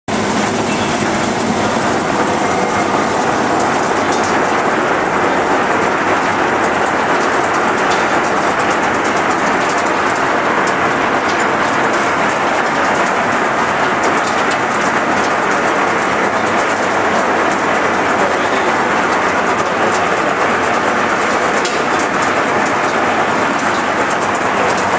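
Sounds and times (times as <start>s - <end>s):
machine rumble: 0.1s - 24.9s
olives rattling over metal grate: 0.1s - 24.9s.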